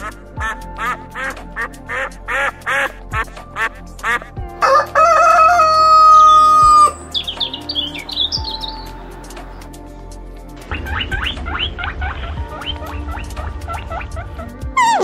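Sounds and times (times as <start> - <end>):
duck quacking: 0.0 - 4.3
soft music with low beat: 0.0 - 15.0
rooster crowing: 4.6 - 7.0
quick high chirps: 14.8 - 15.0.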